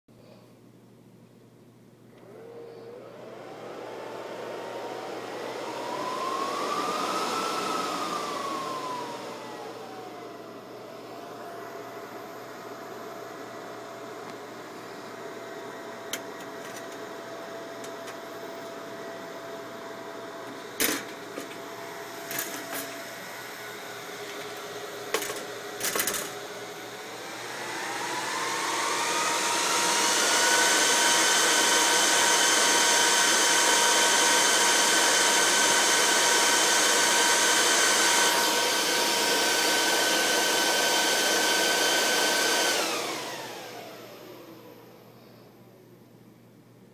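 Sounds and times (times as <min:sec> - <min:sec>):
server cooling fans humming: 0:00.6 - 0:30.9
fans whining at full speed: 0:02.1 - 0:46.2.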